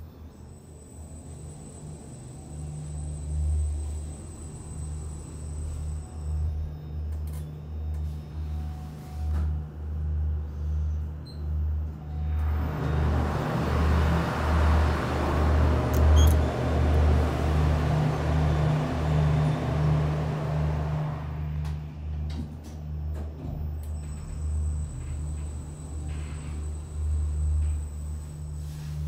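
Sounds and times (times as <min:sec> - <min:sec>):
lift humming: 0:11.3 - 0:29.0
rushing station noise: 0:12.3 - 0:21.6.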